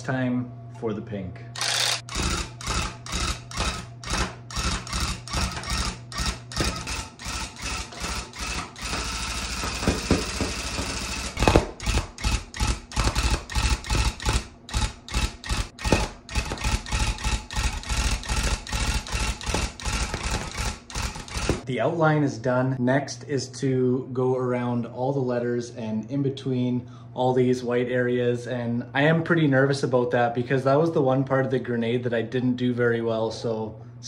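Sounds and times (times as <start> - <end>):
electric tufting gun running: 1.6 - 21.7.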